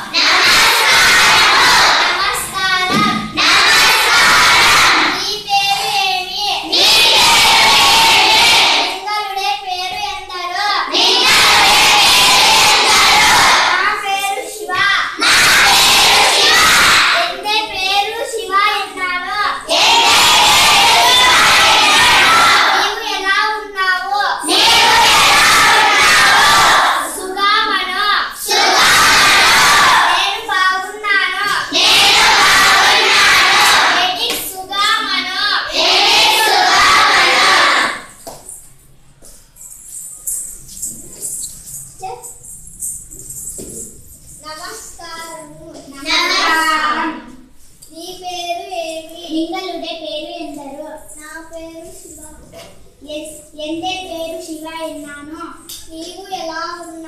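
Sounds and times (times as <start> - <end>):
children reciting in unison: 0.0 - 38.2, 44.4 - 47.5
child speaking: 2.2 - 3.4, 5.2 - 6.7, 8.9 - 10.9, 13.8 - 15.2, 17.2 - 19.6, 34.0 - 35.7, 41.1 - 42.5, 44.4 - 57.0.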